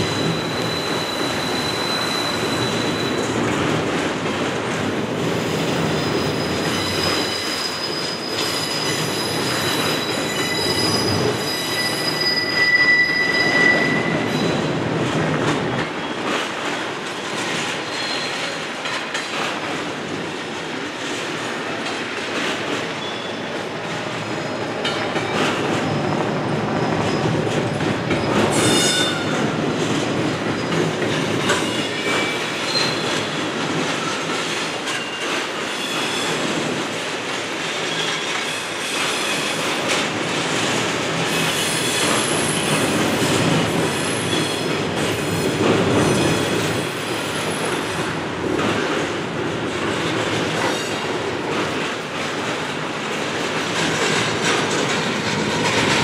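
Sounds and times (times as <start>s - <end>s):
high wheel squeal: 0.0s - 3.3s, 5.5s - 14.6s
train wheels rumbling and rattling: 0.0s - 56.0s.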